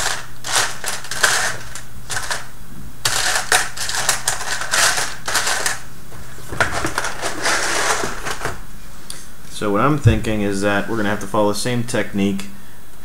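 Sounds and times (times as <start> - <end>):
plastic pieces clattering: 0.0 - 5.8, 6.4 - 8.6.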